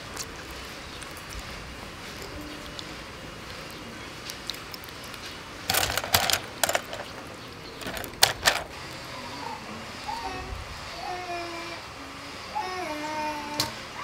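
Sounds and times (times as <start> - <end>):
fish clattering in bamboo basket: 5.7 - 8.7.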